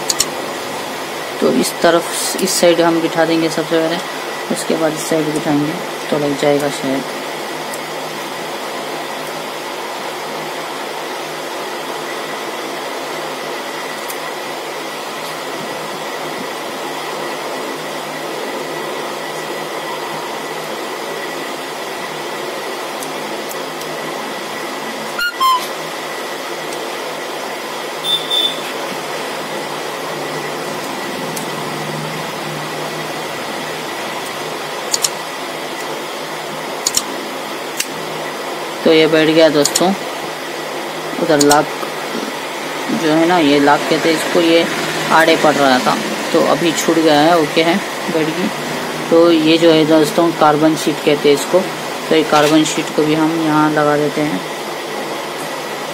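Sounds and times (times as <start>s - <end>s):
electric fan whirring: 0.0s - 55.9s.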